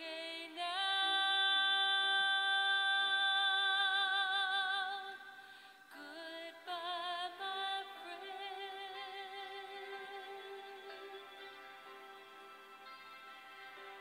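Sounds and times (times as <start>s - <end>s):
high voice singing with vibrato: 0.0s - 11.6s
soft sustained accompaniment: 0.0s - 14.0s.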